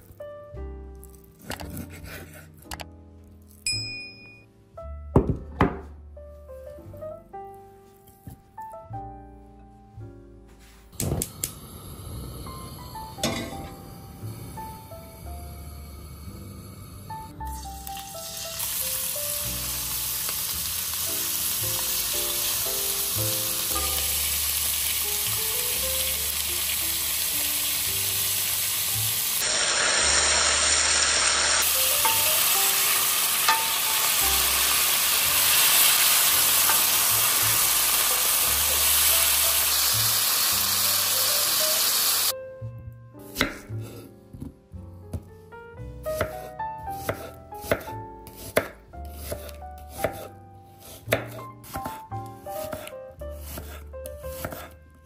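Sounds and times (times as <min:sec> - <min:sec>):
quiet background music: 0:00.0 - 0:29.4, 0:31.6 - 0:55.0
wooden spatula stirring: 0:01.0 - 0:02.7, 0:49.1 - 0:51.0, 0:51.6 - 0:54.8
knife on cutting board: 0:01.4 - 0:02.8, 0:43.3 - 0:44.5, 0:46.1 - 0:54.8
meat sizzling in oil: 0:17.5 - 0:42.4.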